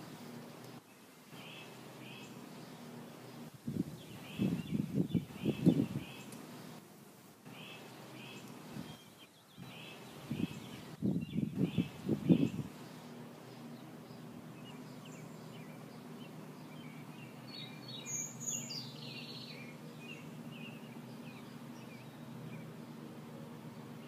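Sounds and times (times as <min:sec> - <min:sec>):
small birds chirping: 0:00.0 - 0:24.0
steady low hum: 0:00.0 - 0:24.0.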